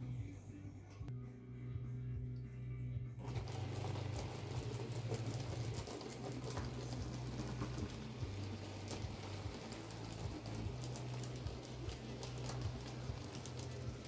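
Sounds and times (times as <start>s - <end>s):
low motor hum: 0.0s - 14.0s
model train wheels clicking: 3.2s - 14.0s.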